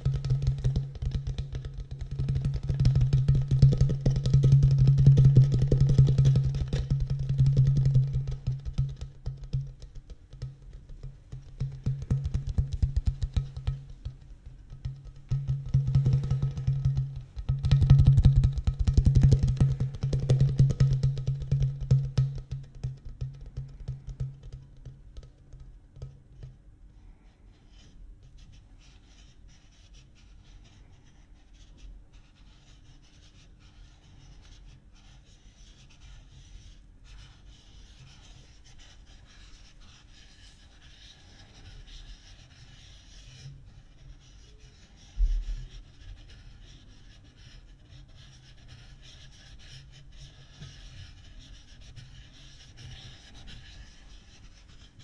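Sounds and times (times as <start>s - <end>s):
thump: 45.2s - 45.6s.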